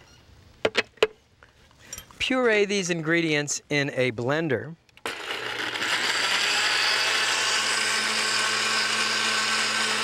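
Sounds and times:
blender running: 5.0 - 10.0.

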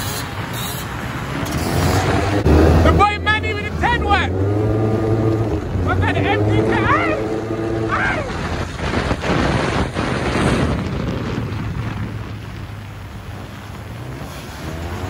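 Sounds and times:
motorcycle engines running: 0.0 - 15.0
wind noise on microphone: 4.3 - 15.0
person shouting: 5.8 - 8.5.

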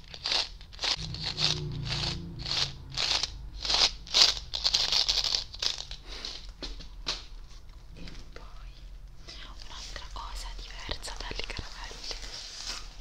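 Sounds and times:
candies rattling in a tube: 0.0 - 1.8, 3.1 - 6.5.

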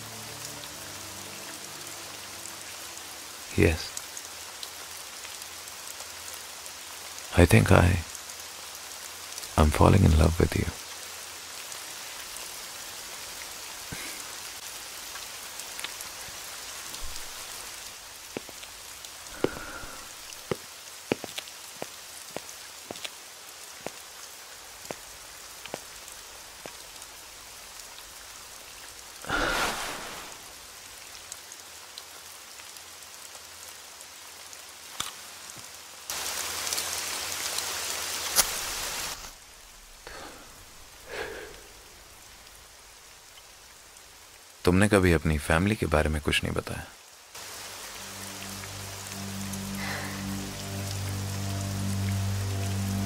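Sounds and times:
heavy rain falling: 0.0 - 53.0
sharp drips and taps: 19.3 - 23.2, 25.6 - 25.9.

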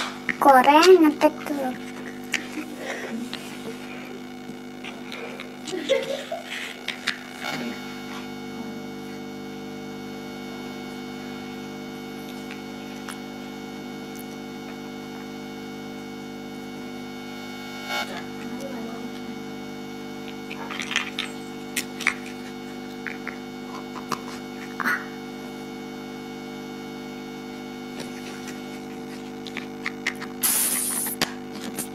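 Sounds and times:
electrical mains hum: 0.0 - 31.9.

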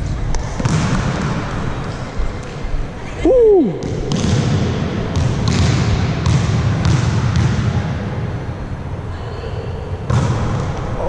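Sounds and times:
low rumble of hall noise: 0.0 - 11.0
volleyball thuds: 0.3 - 1.7, 3.8 - 8.0.

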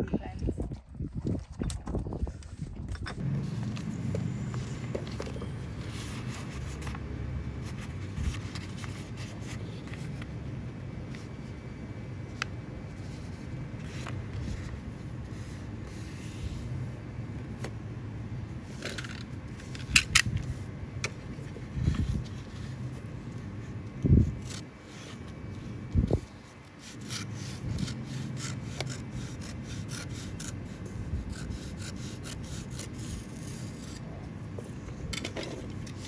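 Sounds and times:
steady low hum: 0.0 - 36.0
paper rustling and crinkling: 3.2 - 10.3.

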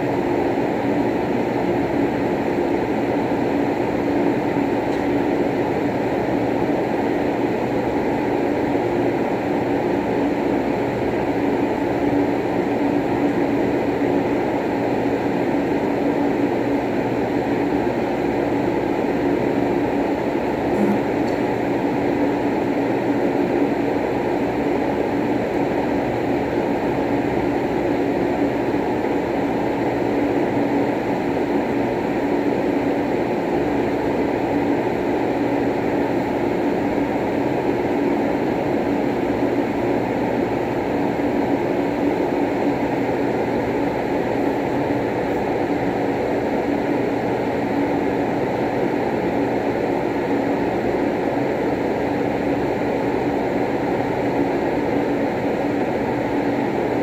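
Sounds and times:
steady droning noise: 20.6 - 23.0.

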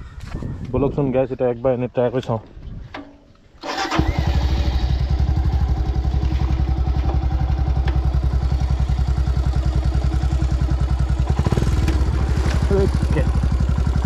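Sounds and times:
motorcycle engine idling: 3.8 - 14.0.

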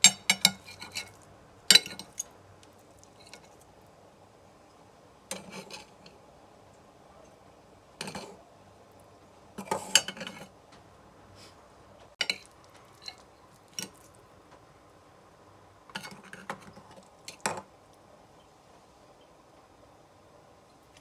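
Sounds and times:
cutlery clinking and scraping on plate: 0.0 - 2.3, 5.3 - 6.2, 8.0 - 8.4, 9.6 - 10.5, 12.2 - 14.1, 15.9 - 17.7.

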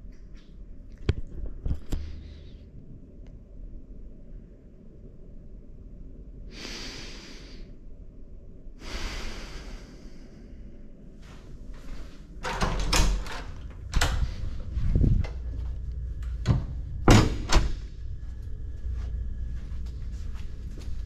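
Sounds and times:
door latch clicks and knocks: 12.4 - 14.2, 16.4 - 17.7.

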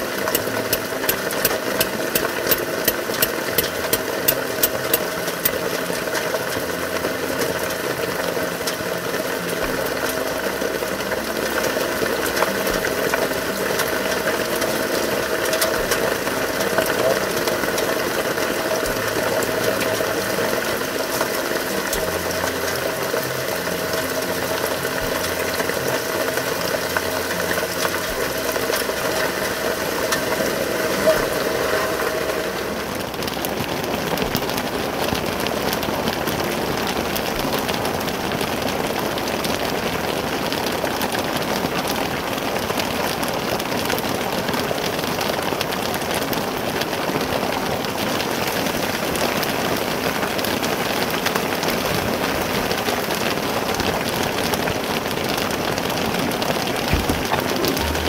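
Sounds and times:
heavy rain: 0.0 - 58.0
steady hum of held pitches: 57.1 - 58.0.

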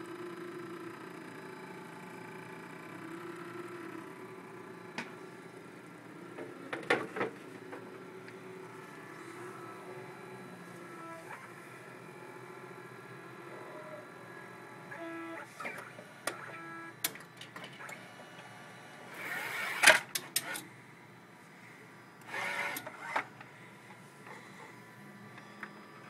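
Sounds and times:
small motor whirring: 19.1 - 20.7, 22.2 - 23.3.

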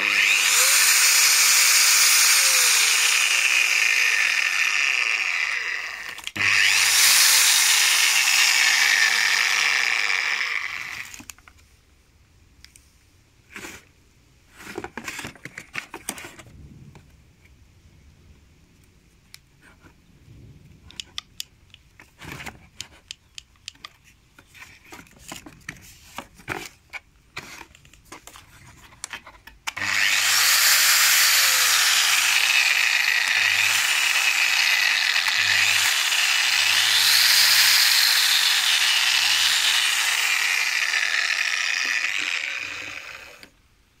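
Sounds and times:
angle grinder whining: 0.0 - 11.3, 29.7 - 43.6
tool being handled clicks: 22.8 - 24.0.

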